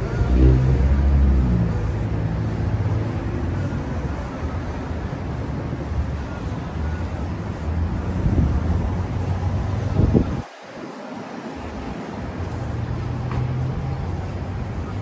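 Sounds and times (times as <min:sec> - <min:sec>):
vehicle engine running close by: 0:00.0 - 0:10.4
low rumble of city traffic: 0:00.0 - 0:15.0.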